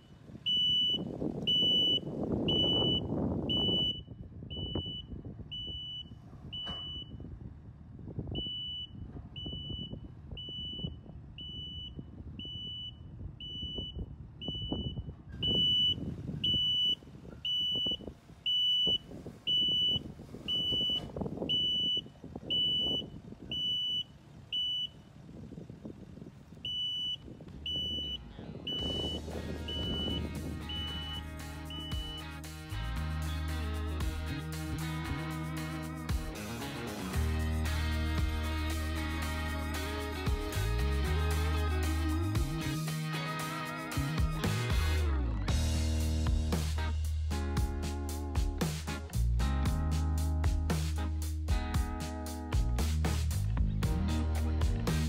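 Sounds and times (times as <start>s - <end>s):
diesel machinery rumbling: 0.0s - 55.0s
backup alarm beeping: 0.4s - 7.2s, 8.4s - 25.0s, 26.6s - 32.4s.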